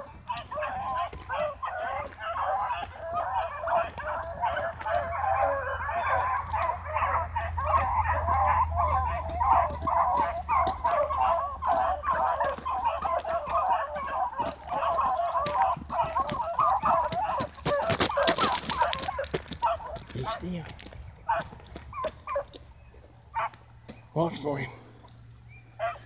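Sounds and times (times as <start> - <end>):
pack of hounds baying: 0.0 - 26.0.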